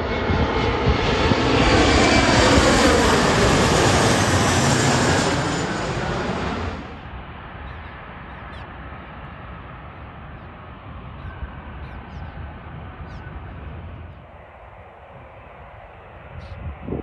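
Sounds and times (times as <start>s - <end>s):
distant jet rumble: 0.0s - 17.0s
jet passing low overhead: 0.0s - 17.0s.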